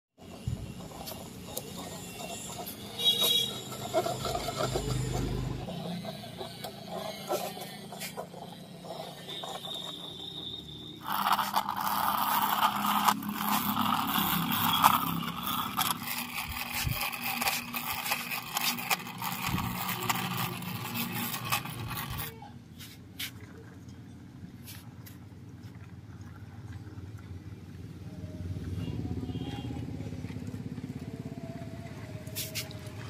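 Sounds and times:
toy wheels scraping on concrete: 0:00.2 - 0:23.4, 0:32.2 - 0:32.8
small clicks and rattles: 0:11.0 - 0:22.3.

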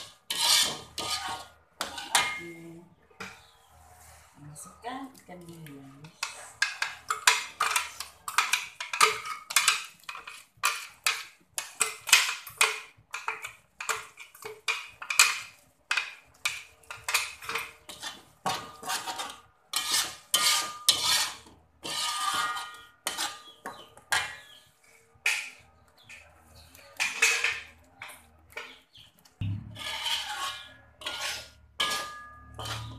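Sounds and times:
metal spatula scraping a wok: 0:00.0 - 0:04.8, 0:06.0 - 0:32.9
wok ringing: 0:29.4 - 0:32.9.

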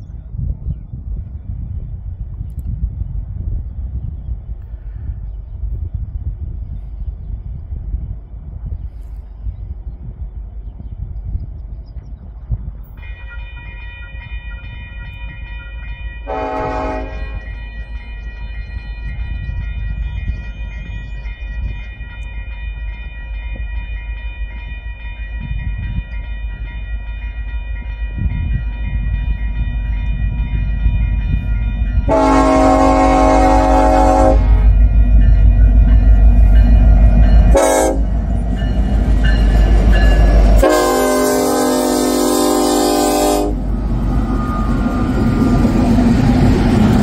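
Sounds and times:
train engines and wheels rumbling: 0:00.0 - 0:47.0
train air horn blasts: 0:16.2 - 0:17.6, 0:32.1 - 0:34.9, 0:37.4 - 0:38.2, 0:40.6 - 0:43.7.

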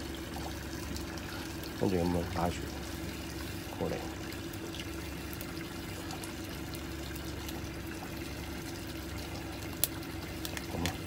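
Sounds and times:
low mechanical hum: 0:00.0 - 0:11.0
running water trickling: 0:00.0 - 0:11.0.

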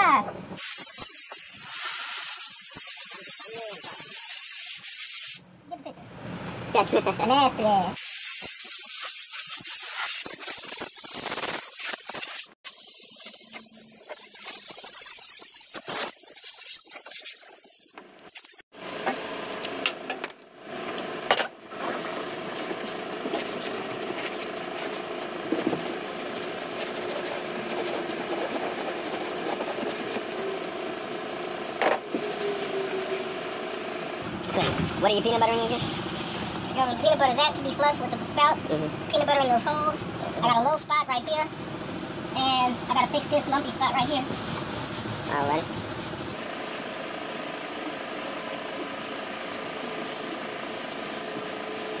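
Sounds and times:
compressed air hissing from nozzle: 0:00.6 - 0:05.4, 0:08.0 - 0:18.6
steady machine hum: 0:18.8 - 0:52.0
cloth rubbing over surface: 0:44.2 - 0:46.4.

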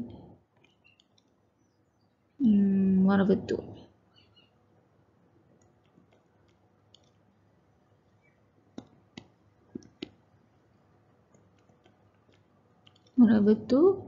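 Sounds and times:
stylus tapping on a screen: 0:08.7 - 0:10.2.

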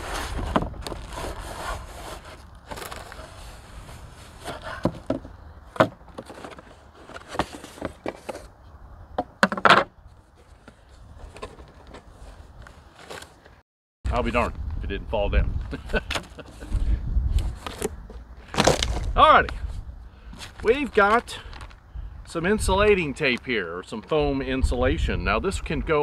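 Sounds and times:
cardboard scraping and rustling: 0:00.0 - 0:08.6, 0:09.4 - 0:13.6, 0:15.9 - 0:21.8.

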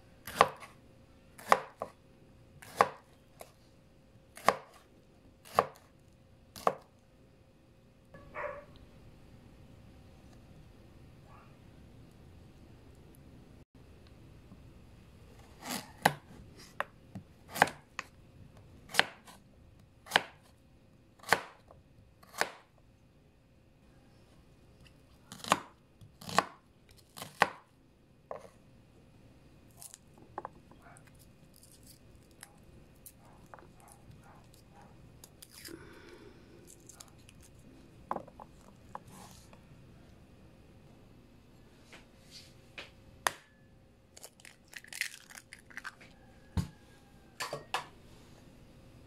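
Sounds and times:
knife chopping on wooden board: 0:00.2 - 0:00.7, 0:01.4 - 0:02.0, 0:02.6 - 0:03.1, 0:04.4 - 0:04.8, 0:05.4 - 0:05.9, 0:06.6 - 0:06.9, 0:15.6 - 0:18.1, 0:18.9 - 0:19.4, 0:20.1 - 0:20.5, 0:21.2 - 0:21.7, 0:22.3 - 0:22.6, 0:25.3 - 0:26.6.

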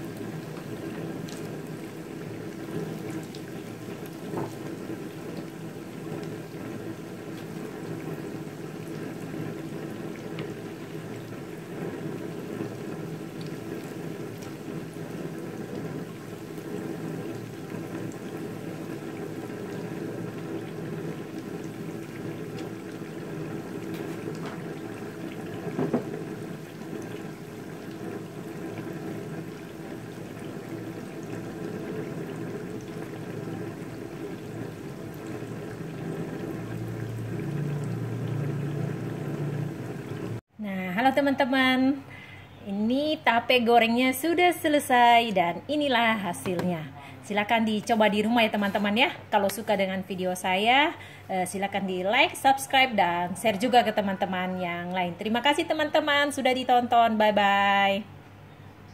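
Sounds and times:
food deep-frying in hot oil: 0:00.0 - 0:40.5.

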